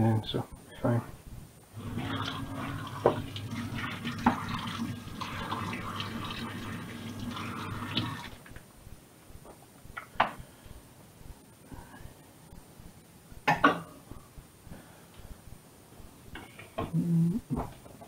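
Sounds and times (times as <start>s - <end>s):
tap running into metal sink: 2.0s - 4.8s.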